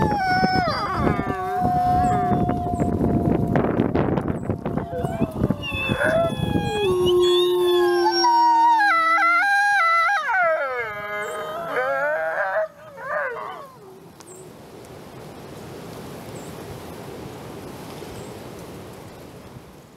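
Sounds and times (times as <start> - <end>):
wolf howling: 0.0 - 14.1.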